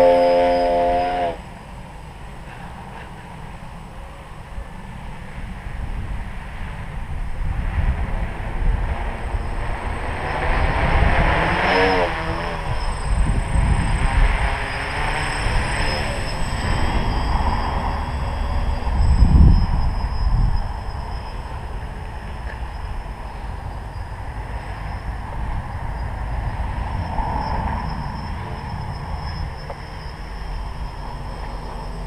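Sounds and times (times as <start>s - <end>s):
wind rumble on microphone: 1.3s - 32.0s
drone propellers buzzing: 7.6s - 32.0s.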